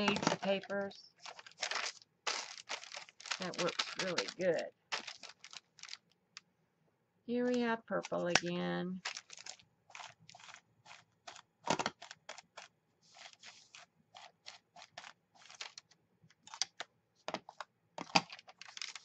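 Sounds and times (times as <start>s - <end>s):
paper rustling: 0.0s - 6.1s, 9.0s - 19.0s
ink pad scuffing on paper: 13.0s - 14.6s.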